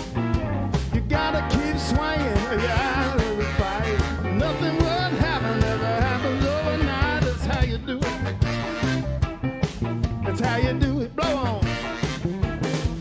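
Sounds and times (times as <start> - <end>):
bending lead melody: 0.0 - 13.0
drums: 0.0 - 13.0
electric bass: 0.0 - 13.0
electric guitar: 0.0 - 13.0
saxophone: 1.9 - 9.4, 11.2 - 13.0.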